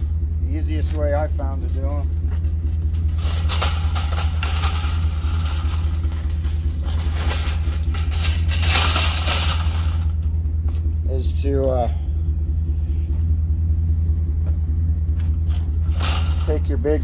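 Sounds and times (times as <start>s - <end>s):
steady low hum: 0.0s - 17.0s
casters clattering on asphalt: 0.8s - 11.0s, 14.4s - 17.0s
shopping cart basket rattling: 3.1s - 10.2s, 15.8s - 17.0s.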